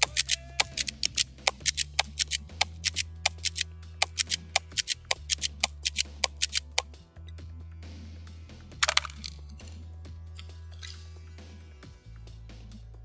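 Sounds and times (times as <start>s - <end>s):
airsoft shotgun pumped and fired: 0.0s - 6.8s
background music with bass: 0.0s - 13.0s.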